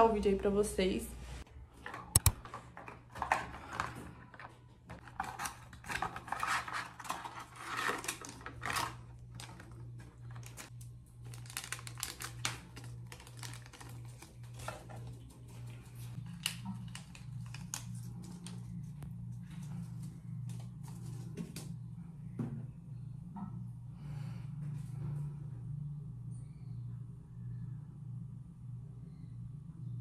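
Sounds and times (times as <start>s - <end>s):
steady low hum: 8.8s - 30.0s
cardboard box and paper crinkling: 11.3s - 15.7s.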